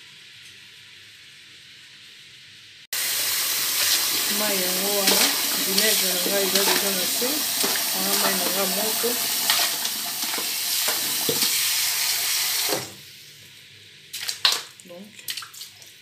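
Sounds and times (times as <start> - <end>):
tap running into a pot: 5.0 - 11.6.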